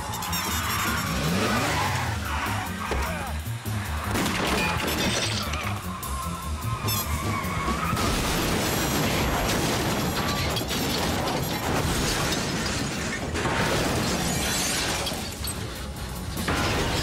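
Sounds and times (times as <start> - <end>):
music: 0.0 - 17.0
metal crashing: 4.0 - 5.9, 6.7 - 17.0
glass shattering: 4.1 - 5.9, 6.8 - 7.1, 7.9 - 15.8.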